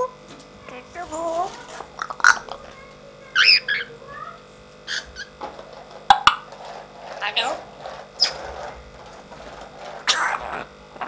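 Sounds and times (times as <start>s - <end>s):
parrot high calls: 3.4s - 4.0s, 4.9s - 5.3s.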